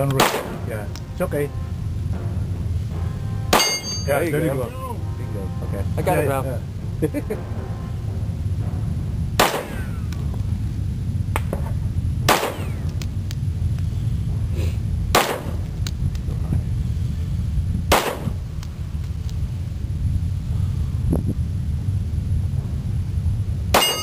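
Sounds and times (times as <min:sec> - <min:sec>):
steady low rumble: 0:00.0 - 0:24.0
handgun shots: 0:00.1 - 0:00.6, 0:09.4 - 0:09.8, 0:12.3 - 0:12.8, 0:15.2 - 0:15.6, 0:17.9 - 0:18.4.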